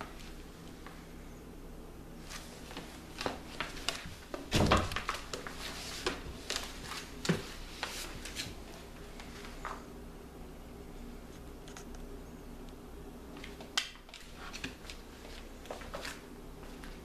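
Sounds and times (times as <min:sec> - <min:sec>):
heavy thump: 0:04.5 - 0:05.0.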